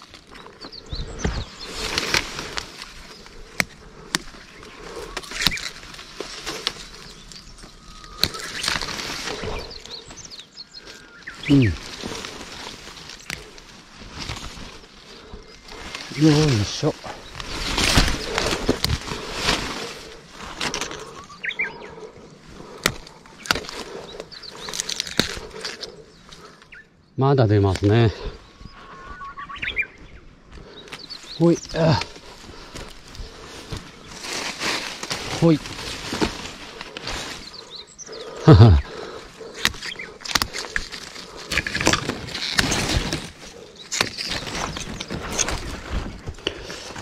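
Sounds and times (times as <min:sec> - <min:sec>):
rustling of dry brush: 0:00.0 - 0:26.6, 0:30.6 - 0:47.0
twigs snapping: 0:00.0 - 0:26.8, 0:30.5 - 0:47.0
sharp snaps of twigs: 0:05.2 - 0:09.4
small bird chirping: 0:06.6 - 0:12.4, 0:20.9 - 0:22.2, 0:23.1 - 0:33.3, 0:37.4 - 0:40.2.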